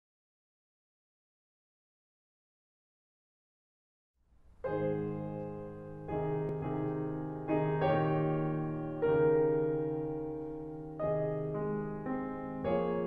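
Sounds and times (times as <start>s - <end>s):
slow piano chords: 4.4s - 13.0s.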